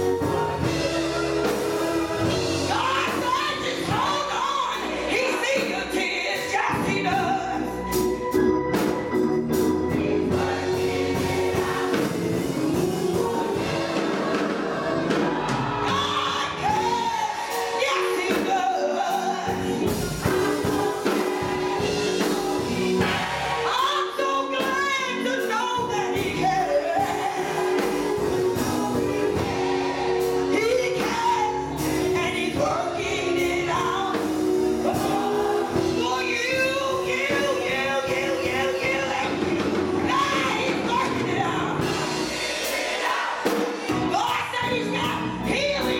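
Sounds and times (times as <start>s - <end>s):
woman singing lead amplified: 0.0s - 7.8s, 9.9s - 42.0s
gospel choir singing: 0.0s - 45.9s.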